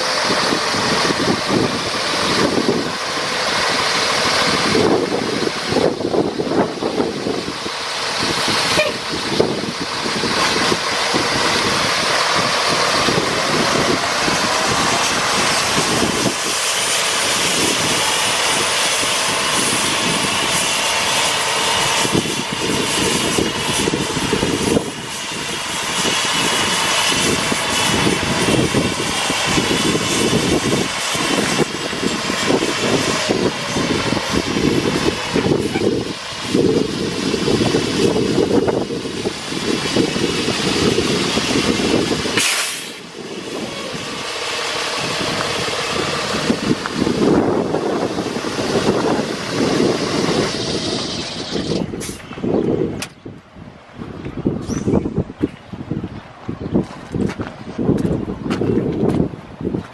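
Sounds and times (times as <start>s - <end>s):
truck diesel engine pulling away: 0.0s - 59.9s.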